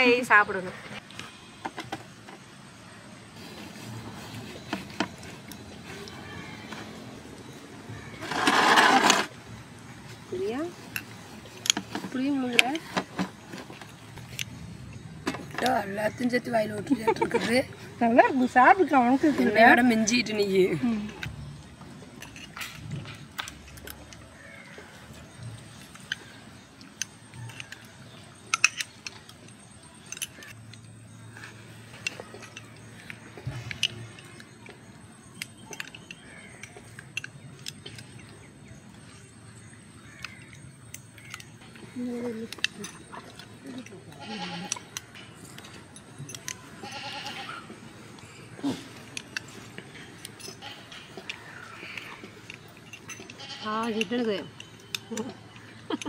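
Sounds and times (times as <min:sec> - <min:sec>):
light clinks and clicks: 0:21.0 - 0:56.0
goat bleating: 0:44.1 - 0:44.7, 0:46.8 - 0:47.7, 0:53.4 - 0:53.8.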